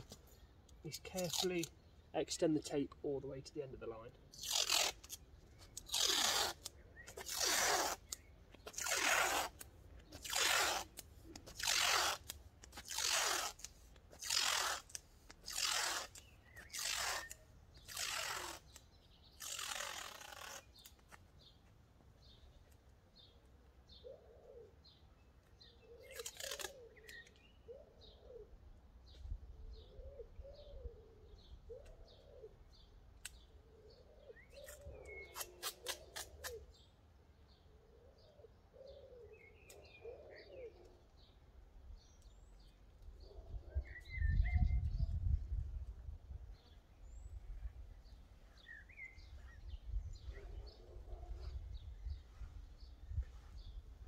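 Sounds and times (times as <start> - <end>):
masking tape ripping off roll: 1.1 - 1.6, 4.4 - 21.1, 26.1 - 27.2, 34.6 - 36.6
faint bird calling: 23.2 - 28.8, 29.7 - 36.9, 37.5 - 41.4.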